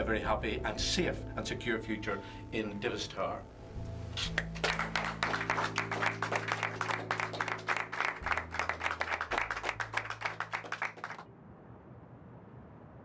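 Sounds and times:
music of held low notes: 0.0 - 10.9
group applauding: 4.2 - 11.2.

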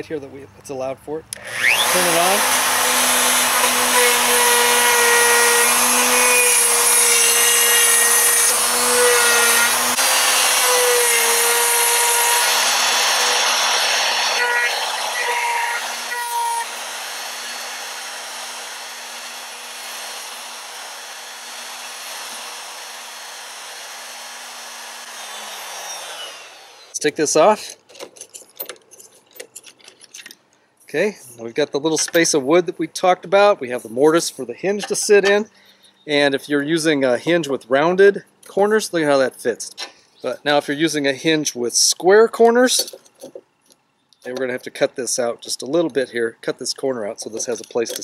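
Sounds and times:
router cutting wood: 1.4 - 27.1.

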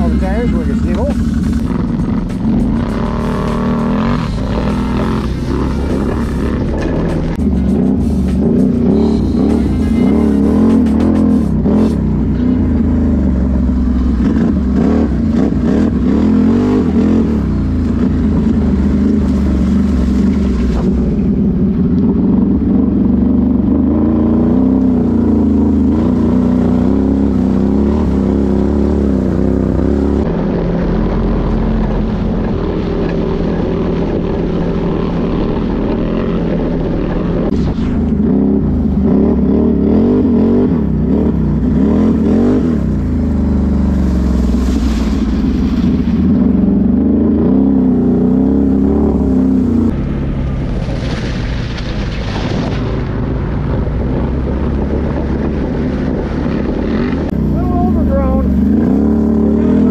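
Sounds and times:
atv engine revving: 0.0 - 59.9
water splashing: 17.8 - 21.3, 42.8 - 46.8, 49.9 - 56.6.

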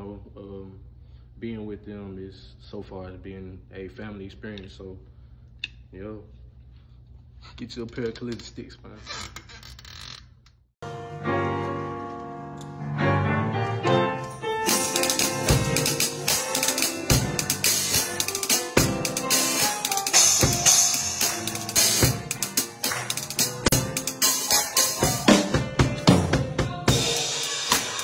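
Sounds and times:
sustained backing chords: 10.8 - 28.0
drum kit playing: 13.6 - 28.0.

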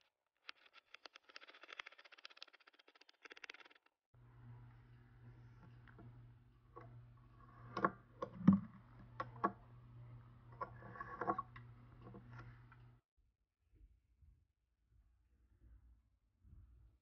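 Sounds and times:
steady low hum: 4.2 - 13.0.

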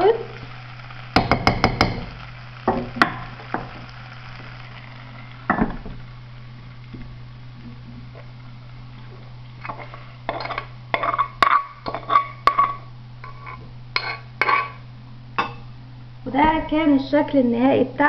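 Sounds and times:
steady low hum: 0.0 - 18.0
spatula scraping pot: 9.6 - 14.8.

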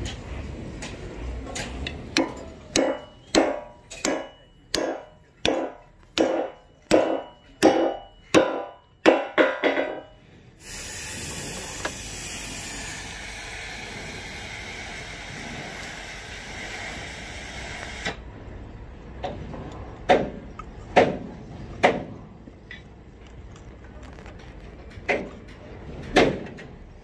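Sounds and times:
hammer striking steel: 1.5 - 10.2
ringing metal clanks: 1.6 - 10.2
spray hissing: 10.6 - 18.0.

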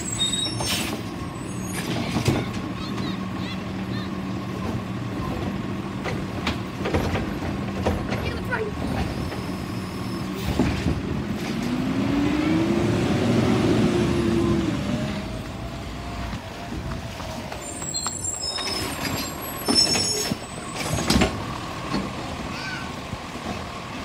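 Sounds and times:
garbage truck engine revving: 8.8 - 15.7.

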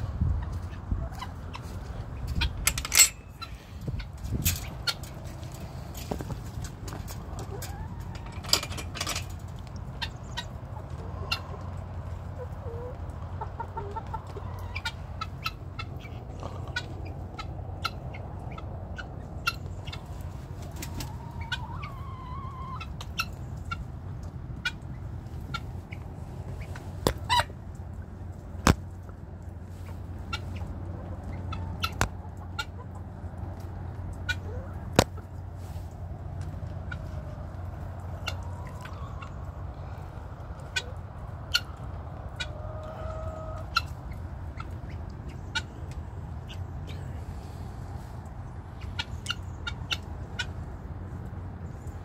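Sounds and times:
steady low rumble: 0.0 - 20.8
birds clucking softly: 0.0 - 52.0.

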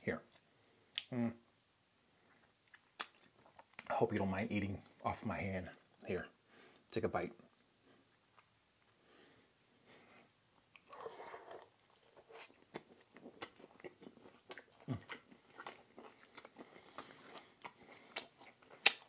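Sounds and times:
person chewing food: 2.2 - 3.9, 10.6 - 19.0
loud bite: 16.4 - 19.0.

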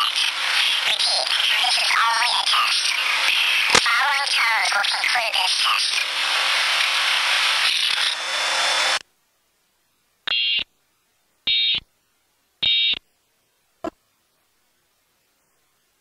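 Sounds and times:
loud steady hiss: 0.0 - 9.0.

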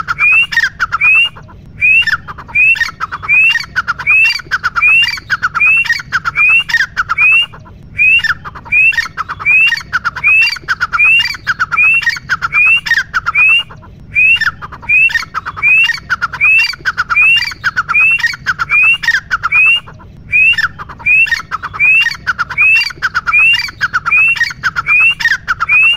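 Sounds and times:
francolin calling: 0.0 - 25.9.

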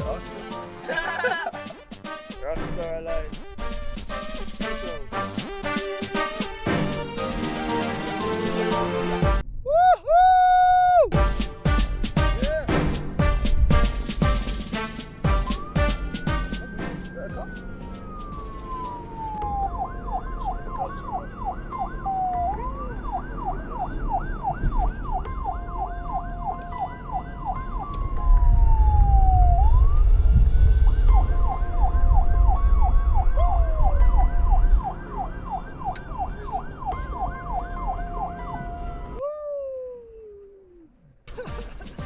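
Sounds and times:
wind and road noise rumble: 12.0 - 39.2
police siren yelping and wailing: 15.3 - 39.2.

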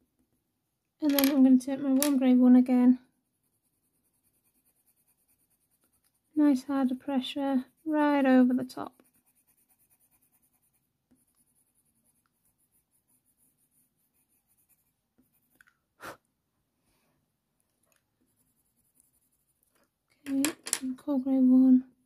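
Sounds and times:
pencil scratching on paper: 3.3 - 15.6, 18.3 - 19.8.

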